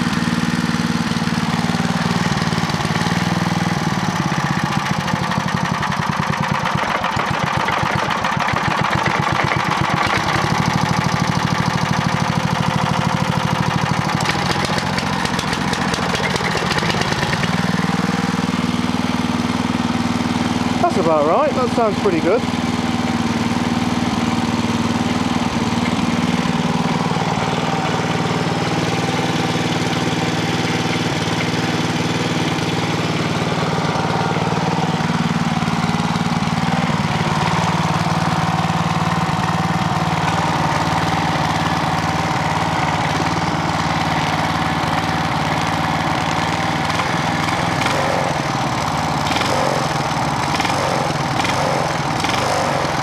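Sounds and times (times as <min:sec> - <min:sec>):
generator engine running: 0:00.0 - 0:53.0.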